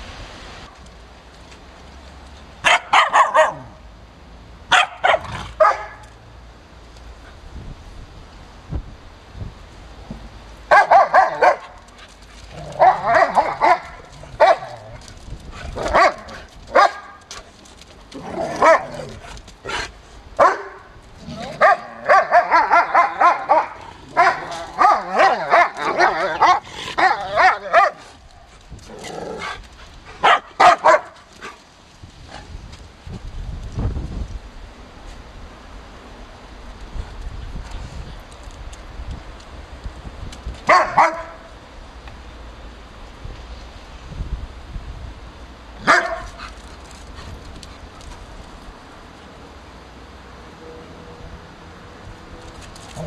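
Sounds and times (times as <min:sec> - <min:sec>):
dogs barking excitedly: 0:02.6 - 0:03.8, 0:04.7 - 0:06.1, 0:10.7 - 0:17.6, 0:18.2 - 0:31.6, 0:40.7 - 0:41.5, 0:45.8 - 0:46.8.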